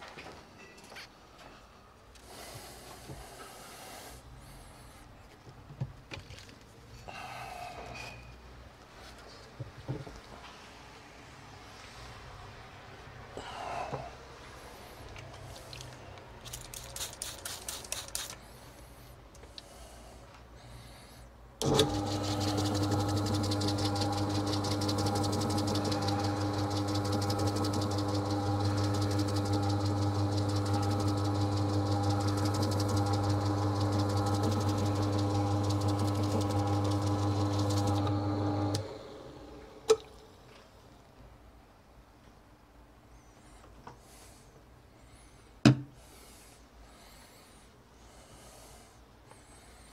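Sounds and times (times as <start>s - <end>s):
motor humming: 21.6s - 39.7s.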